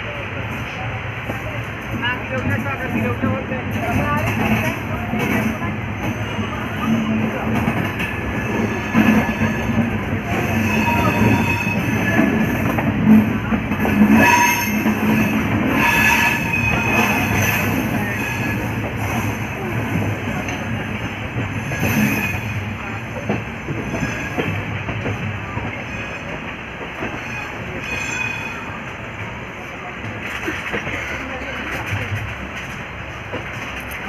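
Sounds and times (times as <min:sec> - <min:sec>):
train wheels rumbling on rails: 0:00.0 - 0:34.0
train wheel squeals: 0:08.3 - 0:12.7, 0:14.1 - 0:19.4, 0:21.6 - 0:23.0, 0:23.7 - 0:24.6, 0:25.7 - 0:26.4, 0:27.0 - 0:28.8.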